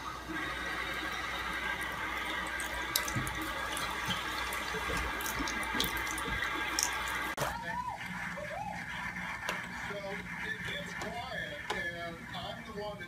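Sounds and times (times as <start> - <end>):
water splashing and dripping: 0.0 - 7.4
tap running into sink: 2.5 - 7.3.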